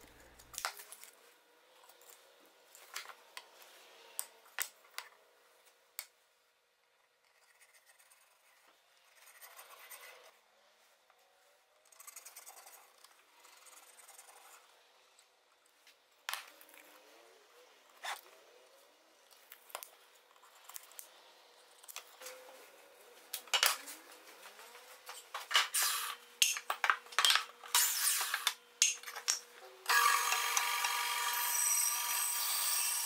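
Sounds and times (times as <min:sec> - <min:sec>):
pencil scratching on wood: 0:07.2 - 0:10.3, 0:11.9 - 0:14.7.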